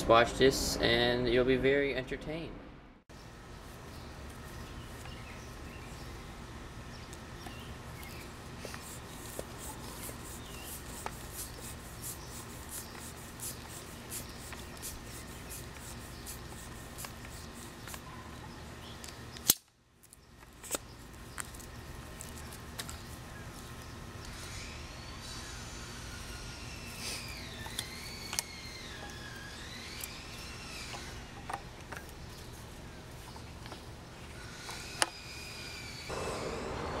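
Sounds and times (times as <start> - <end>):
hand pump strokes: 8.6 - 18.1.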